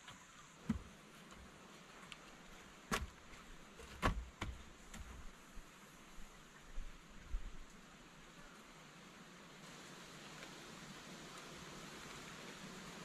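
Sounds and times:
faint steady hiss: 0.0 - 13.0
wooden poles knocking: 3.8 - 5.1.

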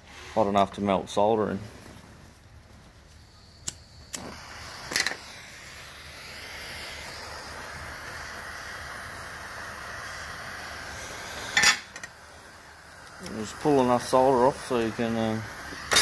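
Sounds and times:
blow torch flame hissing: 0.0 - 16.0
sharp clicks: 3.6 - 4.3.

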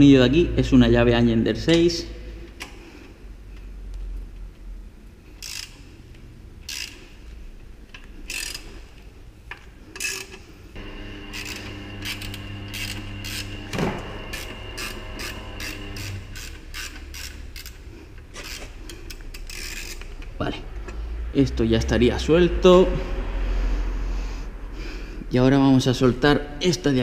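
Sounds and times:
ratchet wrench clicking: 5.3 - 7.3, 7.9 - 10.4, 14.3 - 20.3
steady low hum: 10.5 - 26.7.

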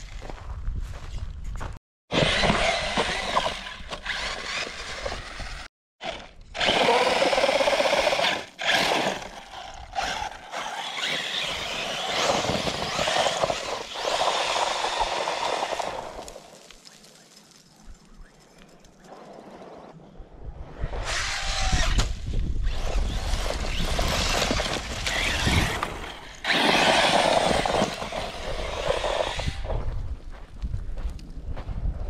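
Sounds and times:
electric motor whining: 2.1 - 16.2, 21.1 - 29.8.

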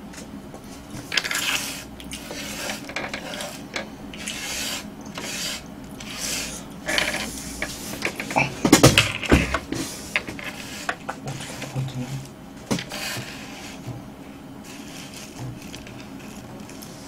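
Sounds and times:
hands sweeping chips on wooden board: 1.0 - 3.6, 4.2 - 8.3, 12.8 - 13.9, 14.6 - 17.0.

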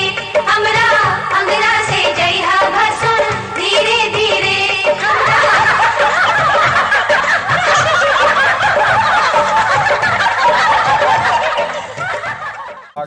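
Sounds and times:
crowd laughing and chattering: 5.0 - 13.0.

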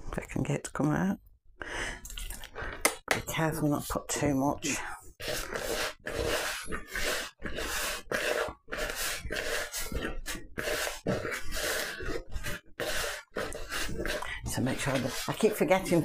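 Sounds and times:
hand squelching dough in bowl: 4.7 - 16.0.

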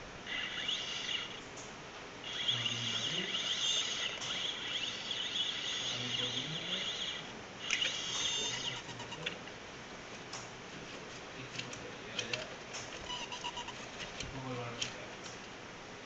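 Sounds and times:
high chirping motor whine: 0.0 - 9.4.

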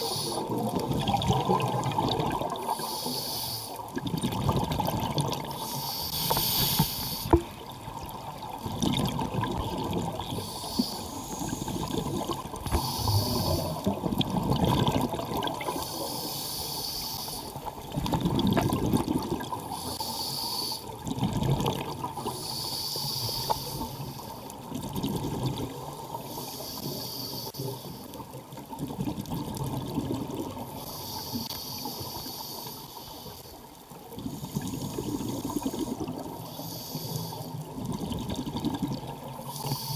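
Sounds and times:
scuba regulator hissing inhalation: 0.0 - 0.6, 2.7 - 3.8, 5.5 - 7.4, 10.3 - 12.0, 12.6 - 14.0, 15.7 - 17.6, 19.6 - 21.0, 22.2 - 24.3, 26.2 - 28.2, 30.7 - 33.6, 34.3 - 37.7, 39.5 - 39.9
bubbling exhalation: 11.8 - 15.8.

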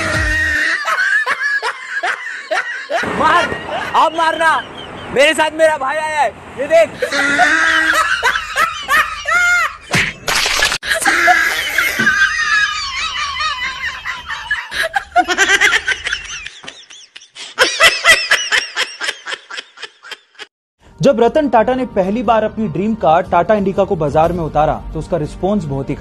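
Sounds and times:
men laughing and yelling: 0.0 - 9.9, 10.9 - 20.5.

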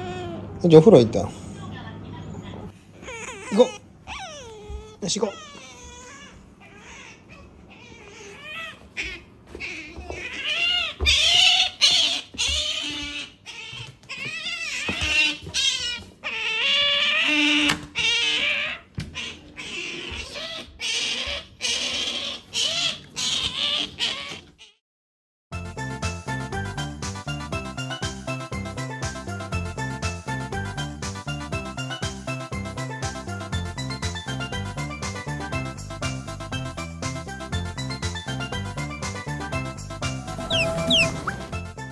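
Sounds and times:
otter squeaking and whining: 3.0 - 24.8, 40.2 - 41.6.

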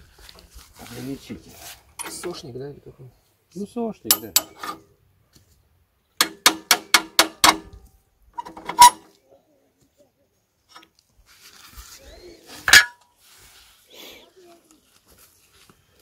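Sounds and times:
metal bracket clanks: 2.0 - 2.4, 4.1 - 4.9, 8.4 - 9.1, 12.7 - 13.0
ringing metal knocks: 4.1 - 4.8, 6.2 - 7.7.

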